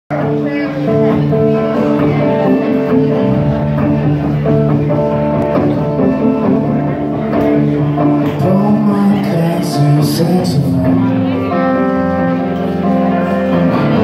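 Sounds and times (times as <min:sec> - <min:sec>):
drum kit: 0:00.1 - 0:14.0
electric bass guitar: 0:00.1 - 0:14.0
electric guitars: 0:00.1 - 0:14.0.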